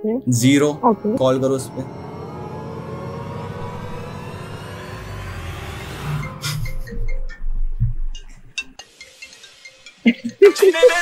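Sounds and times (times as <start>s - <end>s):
whoosh sound effect: 0.4s - 7.4s.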